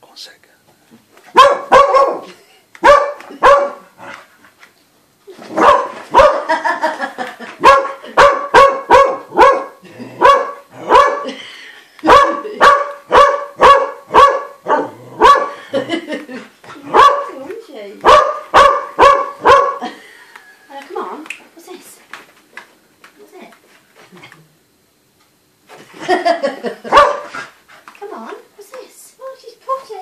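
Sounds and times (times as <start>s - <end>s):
dog barking: 1.3s - 3.9s, 5.5s - 6.6s, 7.6s - 11.3s, 12.0s - 15.6s, 16.9s - 17.4s, 18.0s - 19.9s, 26.8s - 27.4s.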